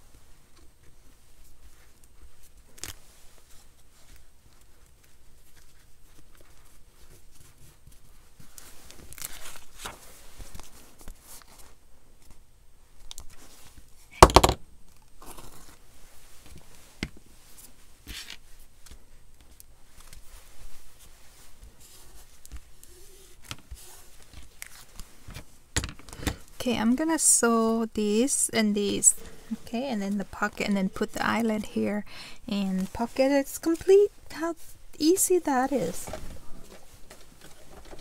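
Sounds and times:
hands rustling paper and fabric: 0.0s - 14.1s, 15.0s - 38.0s.

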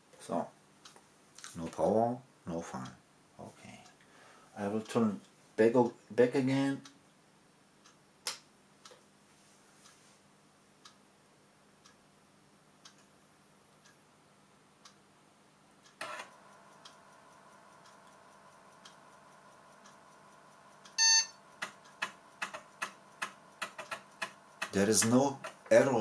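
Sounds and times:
faint computer hum: 0.0s - 26.0s
short computer beep: 21.0s - 21.4s.

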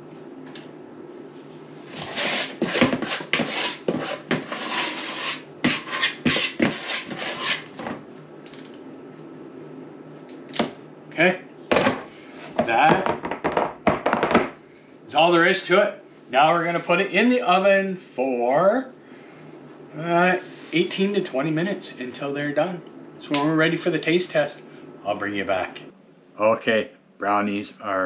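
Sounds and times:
metal spoon scraping a bowl: 2.0s - 7.8s.

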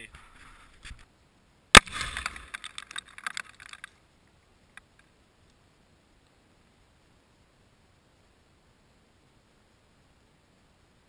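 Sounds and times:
explosive blast: 1.8s - 2.5s
crackling and clatter of debris: 1.8s - 4.0s.

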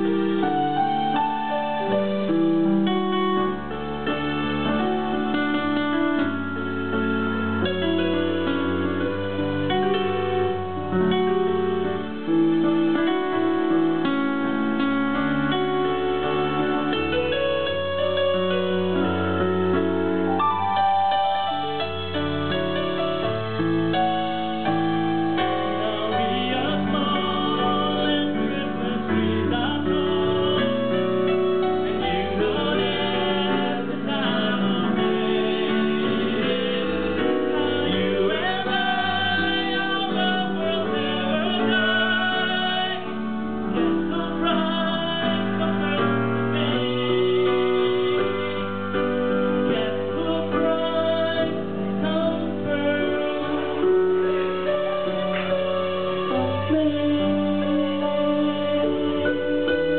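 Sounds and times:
man singing into a microphone: 24.5s - 59.9s.

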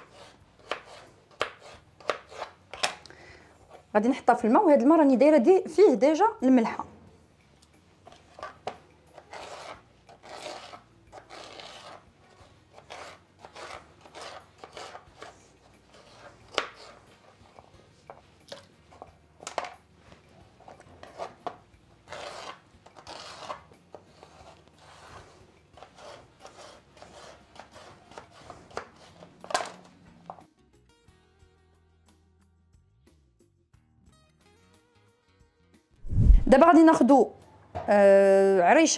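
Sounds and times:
knife chopping on cutting board: 0.0s - 2.9s.

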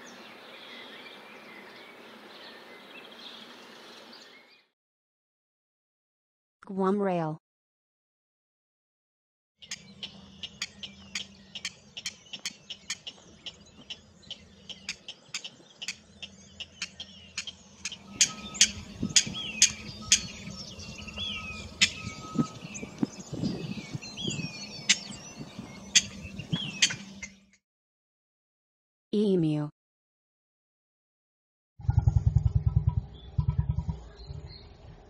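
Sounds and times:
bird clicking calls: 9.6s - 23.1s, 24.8s - 25.1s, 25.9s - 27.3s
small birds chirping: 9.6s - 27.6s, 32.6s - 35.0s
low steady hum: 16.0s - 27.1s.

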